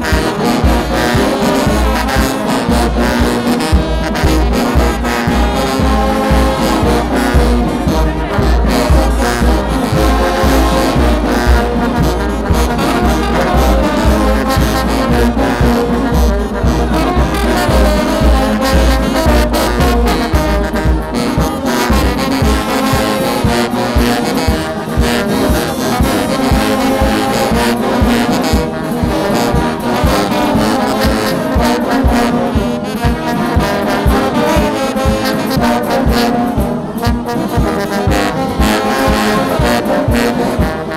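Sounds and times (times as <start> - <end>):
brass band music: 0.0 - 40.9
bass beat: 0.1 - 24.1.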